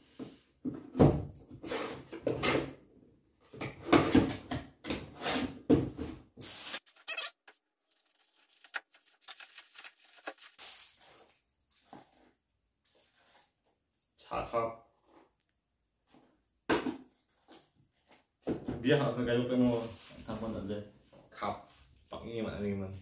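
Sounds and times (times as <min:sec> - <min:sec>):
gift wrapping rustling and tearing: 0:06.4 - 0:12.2
plastic wrapper crackling: 0:06.8 - 0:11.5.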